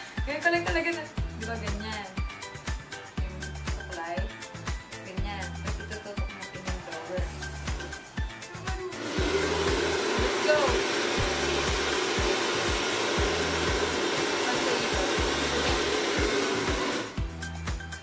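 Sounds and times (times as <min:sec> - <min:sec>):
background music with steady beat: 0:00.0 - 0:18.0
hair dryer blowing: 0:08.8 - 0:17.3.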